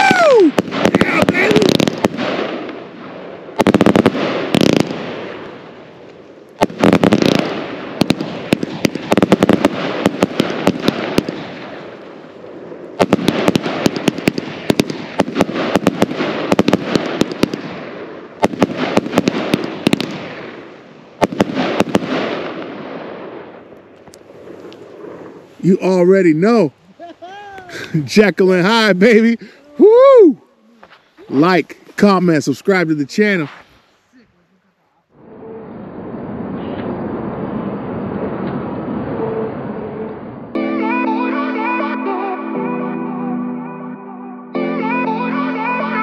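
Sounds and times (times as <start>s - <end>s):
firework bangs: 0.0s - 26.6s, 30.8s - 34.2s.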